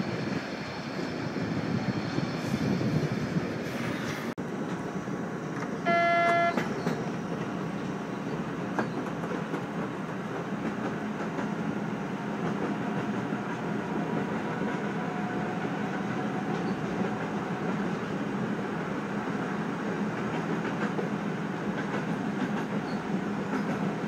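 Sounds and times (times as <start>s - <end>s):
train rumbling on rails: 0.0s - 24.0s
loud pitched tone: 5.9s - 6.6s.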